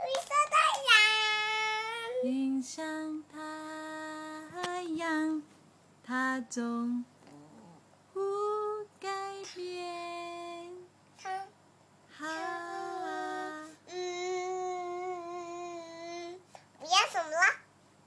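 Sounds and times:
toddler girl singing: 0:00.0 - 0:05.4, 0:08.2 - 0:11.5, 0:12.2 - 0:17.6.

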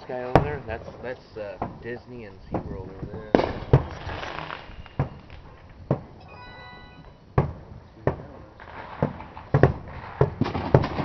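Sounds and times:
fireworks banging: 0:00.0 - 0:06.2, 0:07.0 - 0:11.0
brief high tone: 0:06.2 - 0:07.2.

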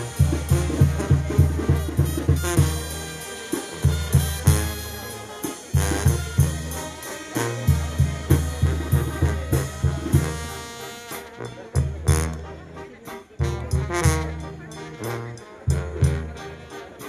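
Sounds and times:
pounding bass drum: 0:00.0 - 0:03.2, 0:05.7 - 0:10.7
brass band playing: 0:00.0 - 0:17.0.

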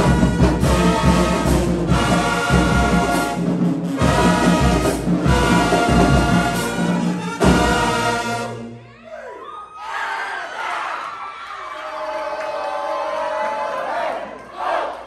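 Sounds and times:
bass drum: 0:00.0 - 0:08.2
marching band brass playing: 0:00.0 - 0:09.0.

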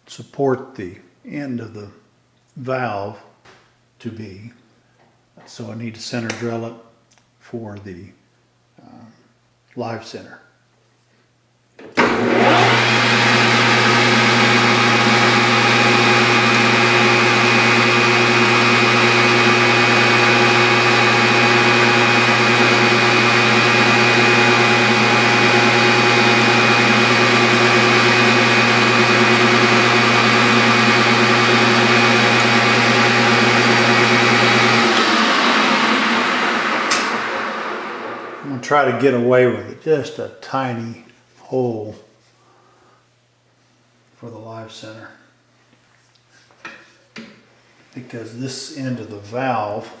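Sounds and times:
metal lathe humming and whining: 0:12.0 - 0:38.4.

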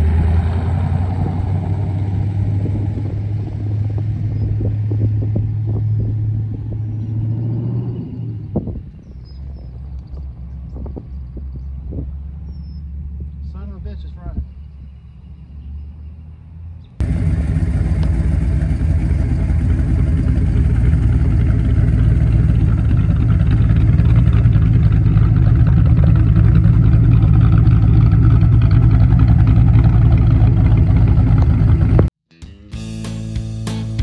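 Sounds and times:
engine idling through exhaust: 0:17.0 - 0:32.1.

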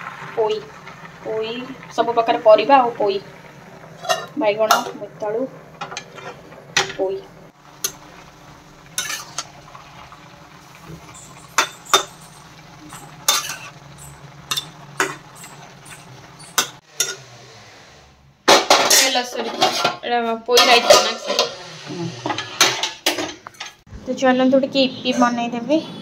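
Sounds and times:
utensils clattering and scraping: 0:04.0 - 0:04.9, 0:05.8 - 0:07.1, 0:09.0 - 0:09.5, 0:10.8 - 0:17.6, 0:18.5 - 0:23.8
metal spoon knocking frying pan: 0:11.2 - 0:12.3, 0:12.9 - 0:17.2.

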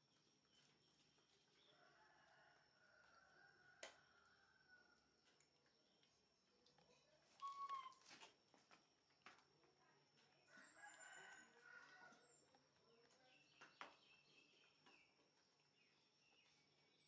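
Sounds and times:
faint rooster crowing: 0:01.6 - 0:05.3, 0:10.3 - 0:12.6.

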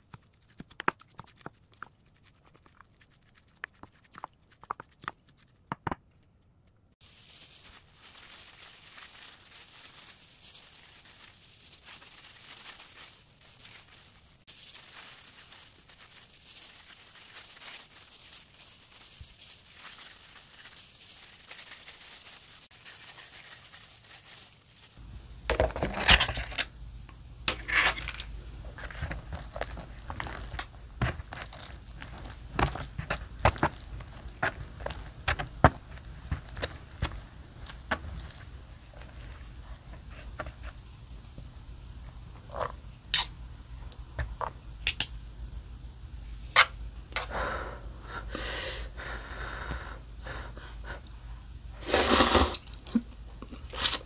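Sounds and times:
eating sounds: 0:00.0 - 0:06.7
plastic gloves crinkling: 0:07.0 - 0:43.2.

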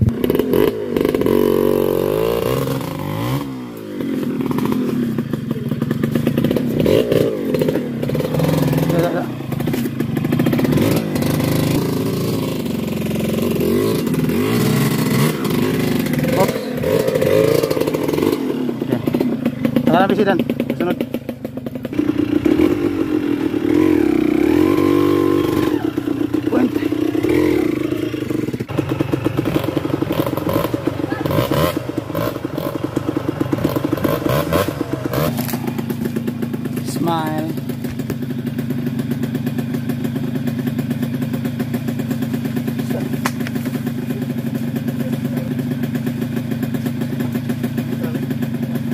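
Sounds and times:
dirt bike engine revving: 0:00.0 - 0:48.9
clatter and scraping: 0:02.4 - 0:23.0, 0:28.3 - 0:38.7, 0:41.9 - 0:48.6.

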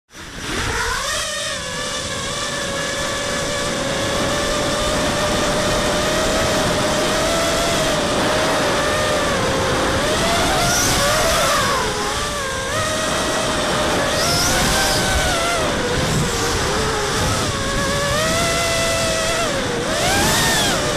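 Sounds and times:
drone motors whining: 0:00.1 - 0:20.9
wind rushing: 0:13.0 - 0:20.9.

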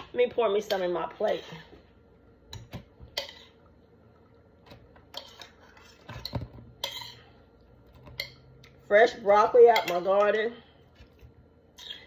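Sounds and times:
spoon clinking against pan and plate: 0:09.6 - 0:10.4.

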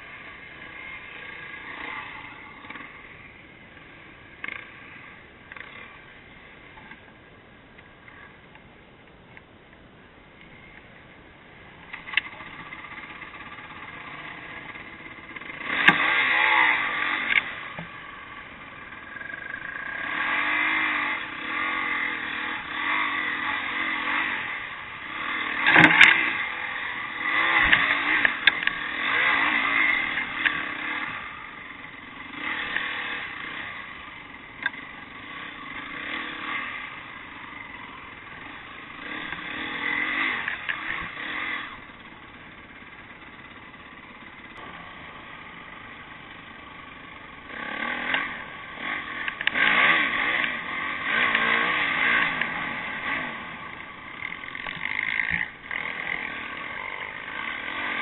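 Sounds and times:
dirt bike engine revving: 0:00.0 - 0:07.0, 0:11.9 - 0:58.0
bike clattering over bumps: 0:11.9 - 0:18.0, 0:25.0 - 0:36.7.

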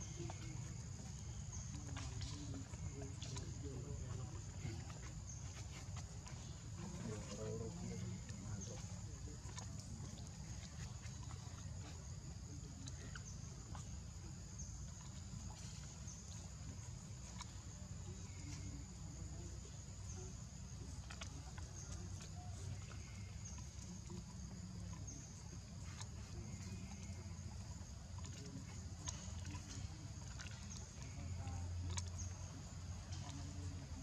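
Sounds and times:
high insect chorus: 0:00.0 - 0:34.0.

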